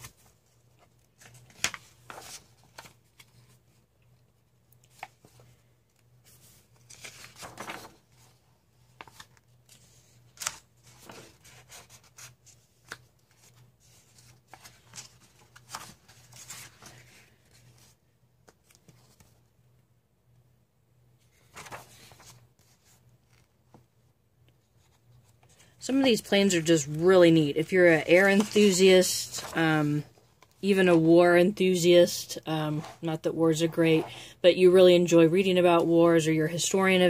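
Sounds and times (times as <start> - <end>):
paper crackles: 0.0 - 3.8, 4.8 - 19.4, 21.2 - 23.8, 24.8 - 31.1
paper pages rustling: 0.0 - 3.8, 4.7 - 19.5, 21.2 - 23.9, 24.5 - 34.2.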